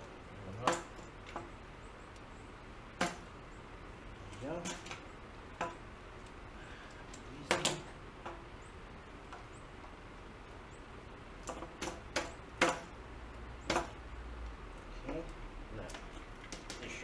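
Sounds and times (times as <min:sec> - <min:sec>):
plastic pipes knocking together: 0:07.5 - 0:08.4, 0:11.4 - 0:12.9, 0:13.7 - 0:14.0.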